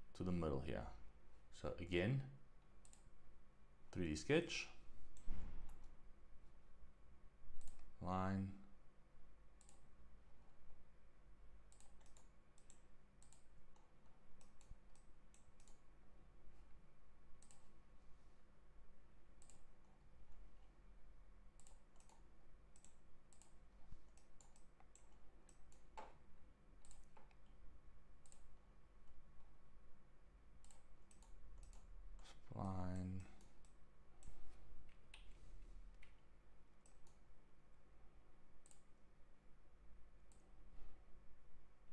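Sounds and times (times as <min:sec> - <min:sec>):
low steady hum: 0:00.0 - 0:41.9
faint computer mouse clicks: 0:02.8 - 0:03.1, 0:09.6 - 0:09.9, 0:11.7 - 0:15.8, 0:17.4 - 0:17.7, 0:19.4 - 0:19.7, 0:38.6 - 0:38.9.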